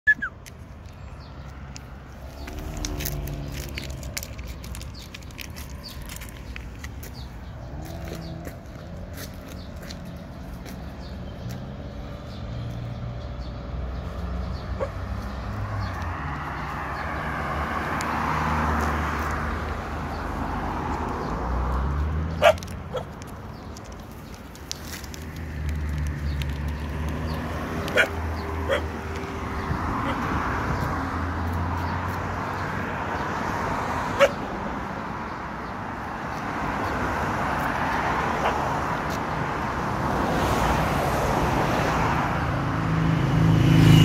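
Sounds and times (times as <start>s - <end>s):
dog barking: 14.8s - 15.0s, 22.4s - 23.1s, 27.9s - 29.0s, 34.2s - 34.4s.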